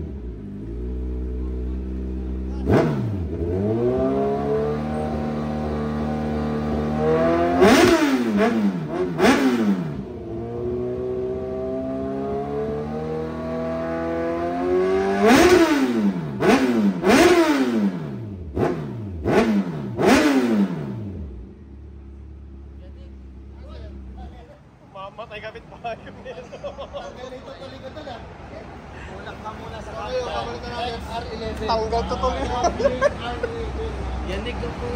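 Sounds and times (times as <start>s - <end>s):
motorcycle engine idling and revving: 0.0s - 26.4s.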